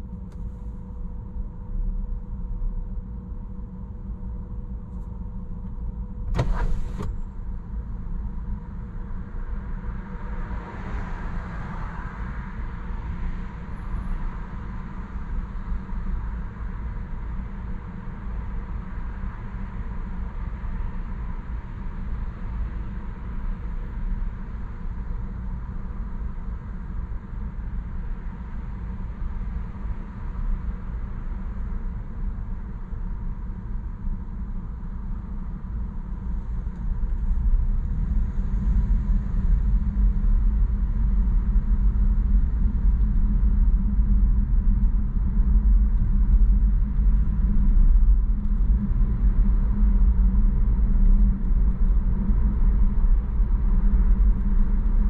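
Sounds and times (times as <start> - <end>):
car engine rumble: 4.4 - 9.6
road noise: 6.3 - 7.2.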